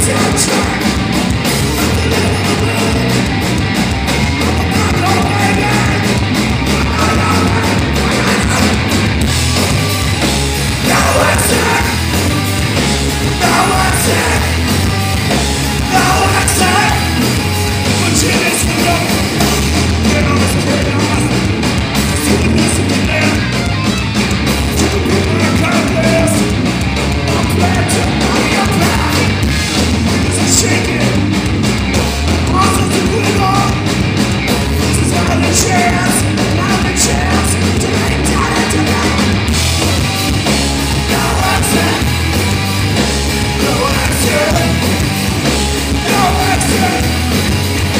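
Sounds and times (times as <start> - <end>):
person singing: 0.0 - 3.4, 4.4 - 8.9, 10.8 - 12.2, 13.2 - 14.8, 15.8 - 17.2, 27.2 - 29.4, 34.9 - 39.4, 41.0 - 42.2, 43.5 - 45.0, 45.9 - 47.4
rock band playing live: 0.0 - 47.9.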